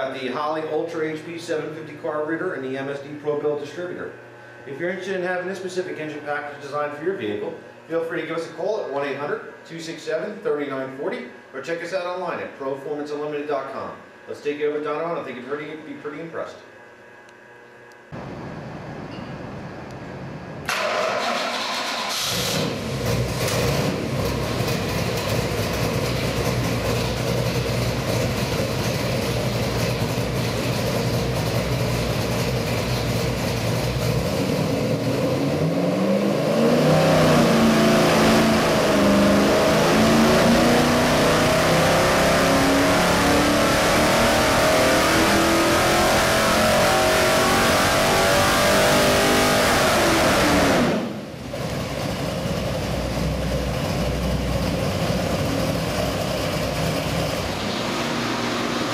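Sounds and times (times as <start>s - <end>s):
engine revving up: 20.6s - 25.8s, 33.8s - 51.8s, 55.4s - 58.9s
engine idling: 20.6s - 35.3s, 51.2s - 58.9s.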